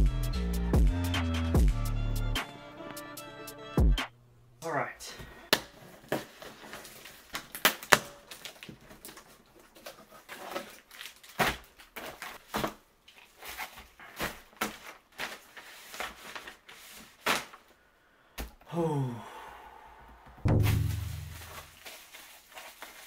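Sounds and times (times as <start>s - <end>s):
packing material rustling: 5.7s - 17.8s, 20.7s - 23.0s
sharp knocks and crackles: 20.4s - 21.7s.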